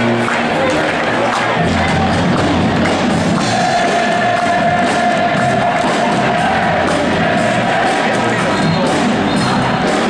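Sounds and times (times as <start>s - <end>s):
arena crowd cheering: 0.0s - 10.0s
loud music with long held note: 0.0s - 10.0s.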